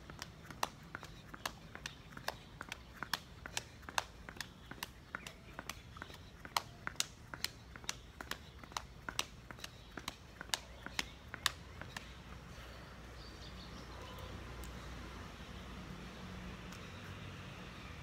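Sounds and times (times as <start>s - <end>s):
sneakers slapping on paving stones: 0.0s - 12.6s.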